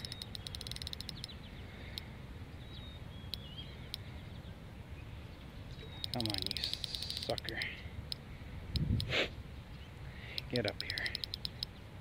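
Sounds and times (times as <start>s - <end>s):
fishing reel clicking: 0.0s - 1.3s, 6.0s - 7.7s, 10.4s - 11.6s
faint bird chirps: 0.0s - 7.9s.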